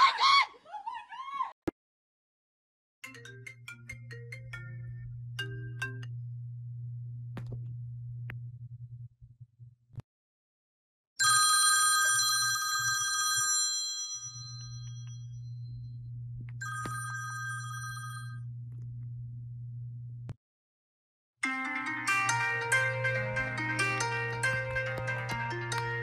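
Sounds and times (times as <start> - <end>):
phone alarm bell ringtone: 11.2 - 15.4, 16.6 - 18.4.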